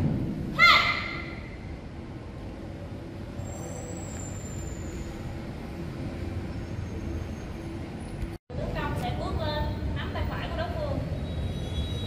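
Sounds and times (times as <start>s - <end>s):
low hall rumble: 0.0s - 3.5s
faint high whistle: 3.4s - 5.3s, 11.2s - 12.0s.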